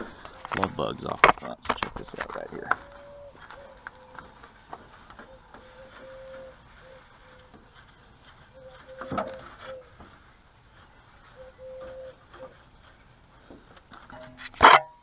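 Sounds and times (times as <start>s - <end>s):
sponge squeaking on plastic: 2.8s - 10.0s, 10.6s - 14.0s.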